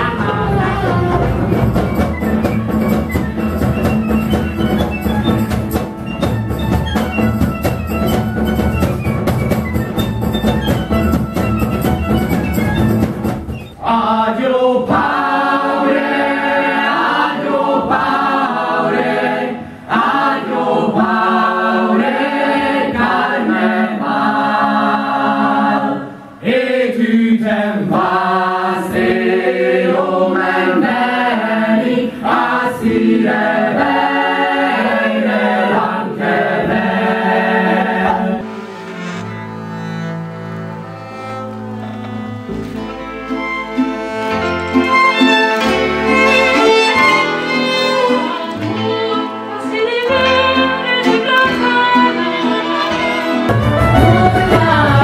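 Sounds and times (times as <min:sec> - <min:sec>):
folk ensemble music: 0:00.0 - 0:55.0
choir singing in harmony: 0:13.8 - 0:40.7, 0:44.7 - 0:55.0.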